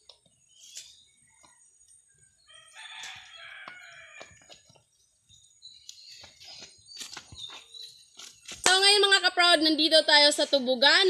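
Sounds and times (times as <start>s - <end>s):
rooster crowing: 2.5s - 4.4s.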